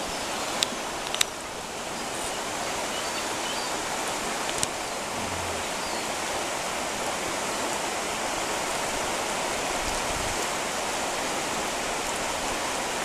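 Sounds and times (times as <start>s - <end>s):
river rushing over riffles: 0.1s - 9.9s.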